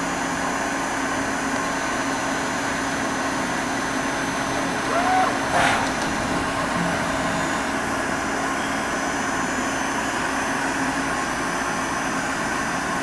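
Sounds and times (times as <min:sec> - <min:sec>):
machine spindle humming: 0:02.1 - 0:10.5.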